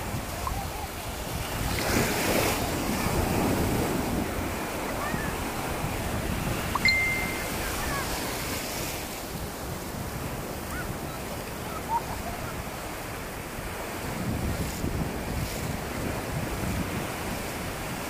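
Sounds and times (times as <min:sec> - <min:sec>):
waves breaking on sandy beach: 0:00.0 - 0:18.0
short high tone: 0:06.8 - 0:08.0.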